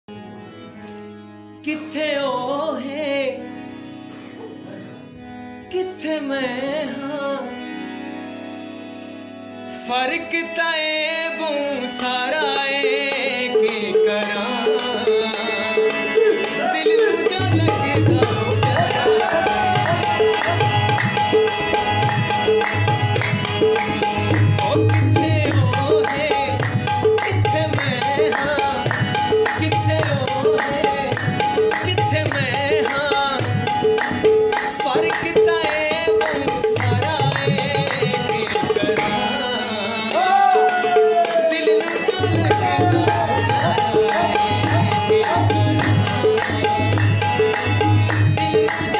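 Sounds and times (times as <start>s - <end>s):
person singing melody: 1.6s - 8.5s, 9.6s - 48.9s
tabla drumming: 12.2s - 48.9s.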